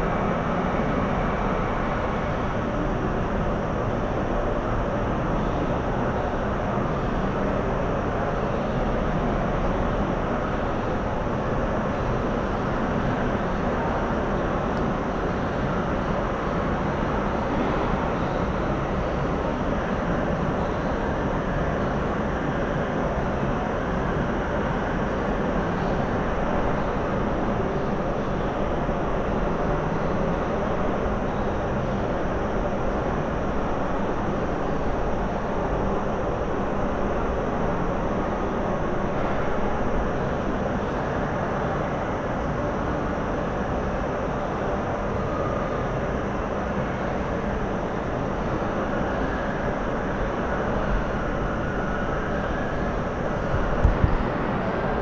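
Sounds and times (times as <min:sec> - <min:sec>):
steady rumbling noise: 0:00.0 - 0:55.0.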